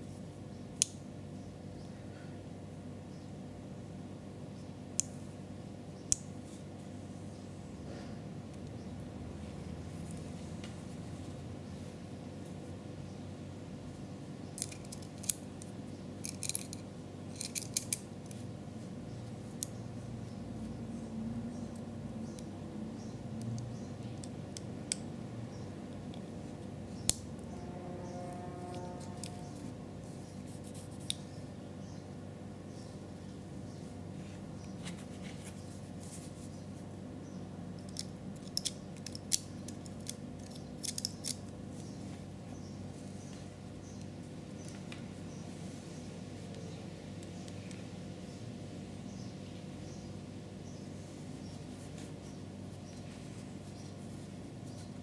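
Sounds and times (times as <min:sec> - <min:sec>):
small metal parts clicking: 0:14.6 - 0:18.4, 0:37.8 - 0:41.5.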